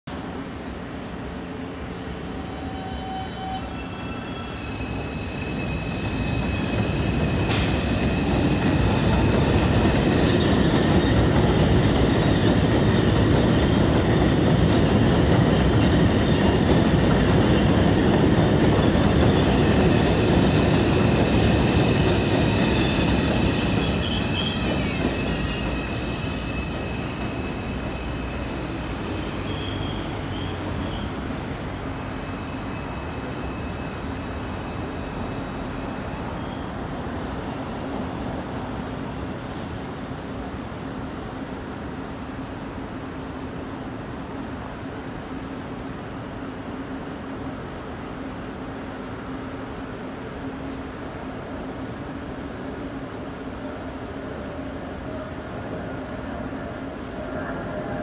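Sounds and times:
subway train rumbling on steel track: 0.1s - 58.0s
high steady squeal: 2.3s - 14.5s, 19.0s - 36.9s.

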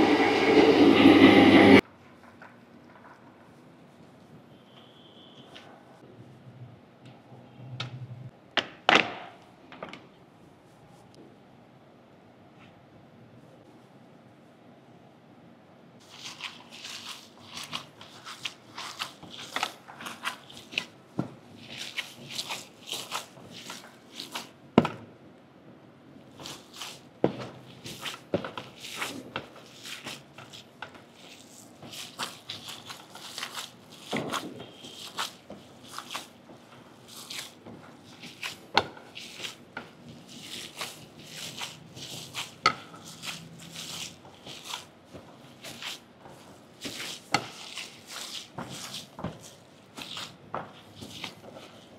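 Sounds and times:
wet squishing of kneaded meat: 16.0s - 24.8s, 26.2s - 51.9s.

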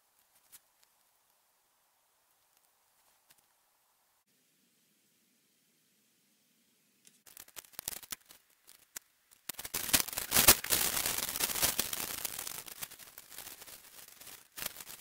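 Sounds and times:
aluminium foil crinkling: 7.2s - 15.0s.

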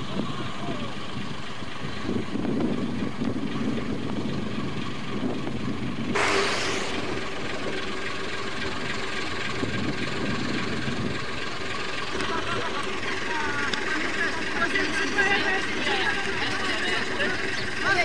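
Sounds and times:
diesel locomotive running: 0.0s - 18.0s
short sharp hiss: 6.1s - 7.4s.

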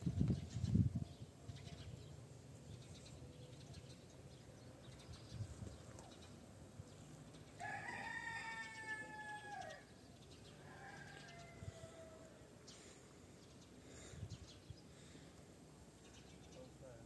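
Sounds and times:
rooster crowing: 7.6s - 9.9s, 10.6s - 12.5s.

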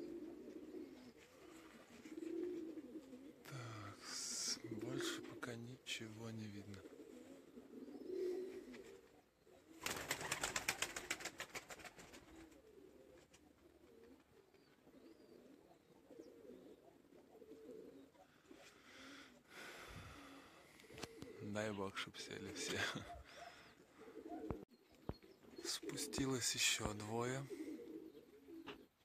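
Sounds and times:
pigeons cooing: 0.0s - 29.0s
wings fluttering: 9.7s - 14.7s.

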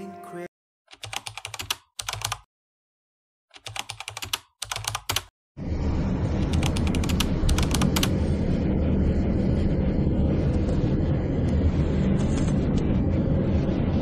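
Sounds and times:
typing clicks: 0.9s - 2.5s, 3.5s - 5.3s.

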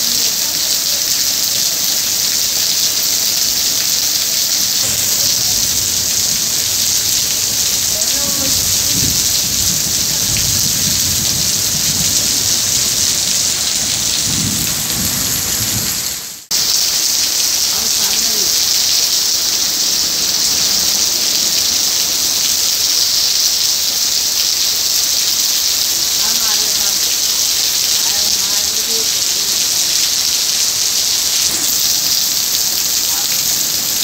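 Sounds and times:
heavy rain pouring: 0.0s - 34.0s
low rumble of thunder: 4.7s - 16.2s.

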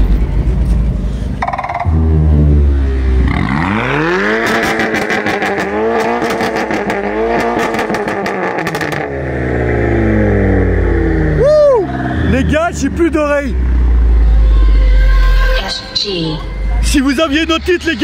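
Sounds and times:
engine crackles: 0.0s - 14.4s
car engine revving: 1.4s - 14.7s.

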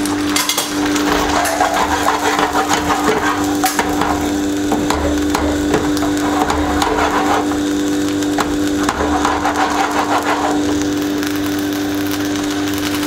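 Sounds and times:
octopus crackling on a grill: 0.0s - 13.0s
steady hum: 0.0s - 13.0s.

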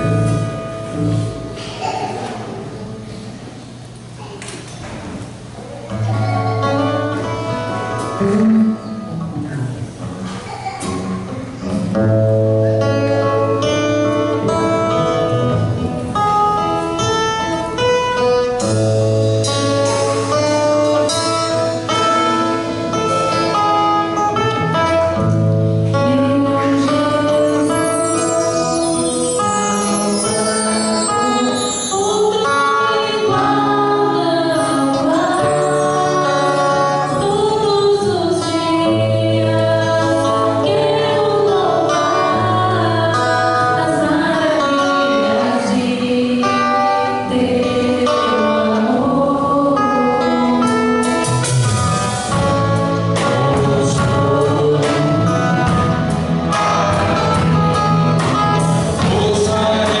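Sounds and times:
drums: 0.0s - 44.4s, 45.9s - 60.0s
electric and acoustic guitars: 0.0s - 60.0s
keyboard: 5.4s - 60.0s
people singing: 25.9s - 51.5s, 52.3s - 60.0s.

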